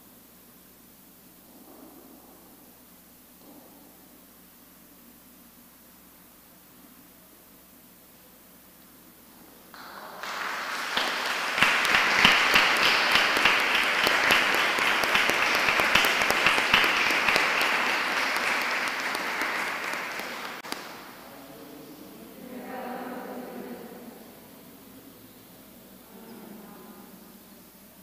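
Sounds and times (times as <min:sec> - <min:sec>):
congregation applauding: 0:09.8 - 0:21.6.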